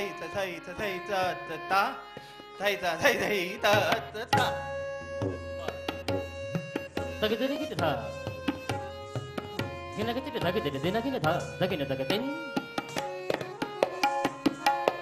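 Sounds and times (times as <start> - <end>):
harmonium repeating melody: 0.0 - 15.0
tabla strokes: 3.7 - 15.0.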